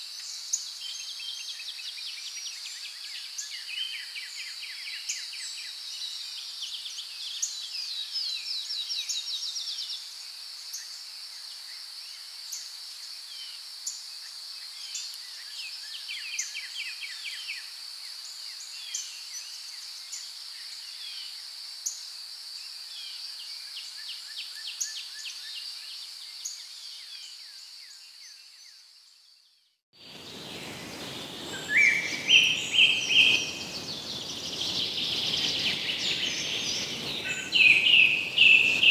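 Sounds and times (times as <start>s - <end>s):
high insect drone: 30.0s - 38.9s
birds chirping and trilling: 30.1s - 38.9s.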